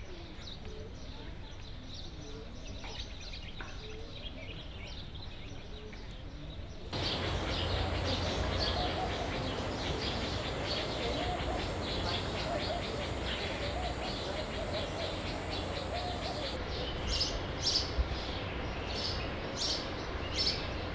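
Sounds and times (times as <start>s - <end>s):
birds chirping: 7.0s - 16.6s.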